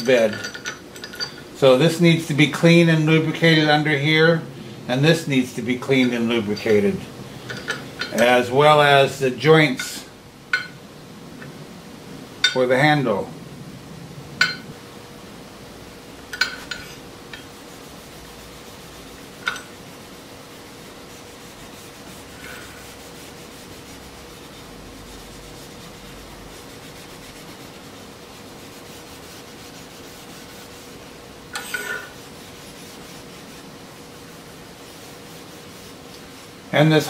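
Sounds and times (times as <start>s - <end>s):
steady low hum: 0.0s - 37.0s
steel wool rubbing on metal: 16.4s - 37.0s.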